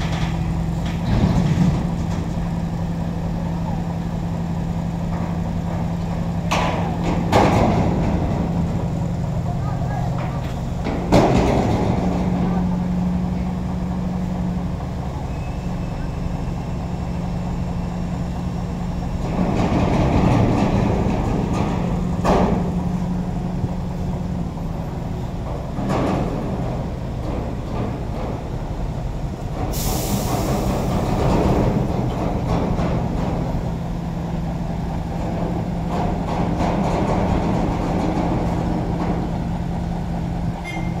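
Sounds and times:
diesel truck engine idling: 0.0s - 41.0s
air brake hiss: 29.7s - 31.0s.

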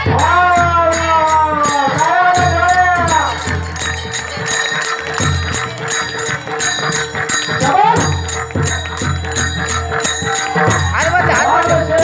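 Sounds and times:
hand cymbals clashing: 0.0s - 12.0s.

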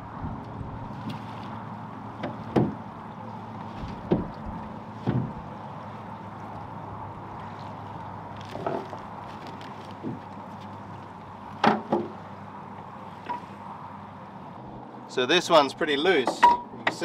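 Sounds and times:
dull knocks: 2.2s - 2.8s, 3.9s - 4.3s, 5.0s - 5.4s.

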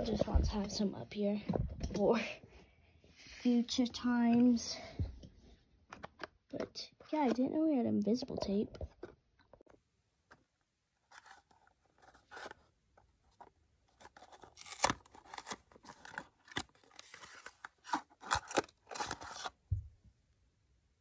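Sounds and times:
cardboard box crackling and tearing: 13.9s - 19.6s.

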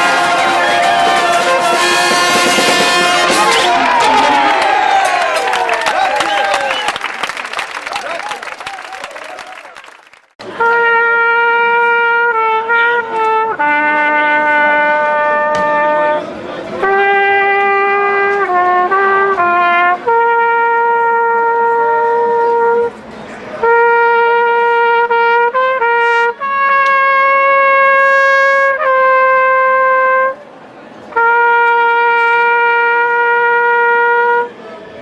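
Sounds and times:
brass instrument playing slow tune: 0.0s - 4.1s, 10.5s - 30.4s, 31.1s - 34.6s.

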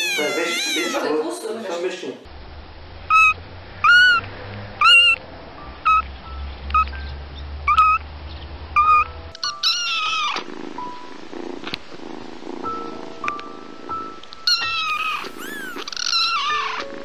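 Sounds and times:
kitten mewing: 0.0s - 1.2s, 14.5s - 16.9s.

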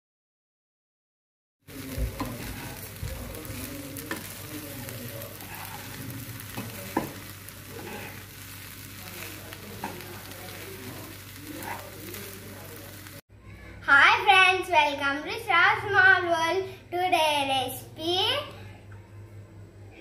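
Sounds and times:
rice frying in a pan: 1.6s - 13.3s.

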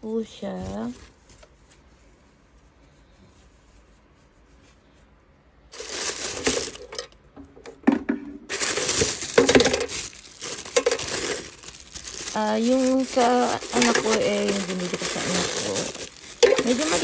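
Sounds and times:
paper crinkling: 5.7s - 7.1s, 8.5s - 17.0s.

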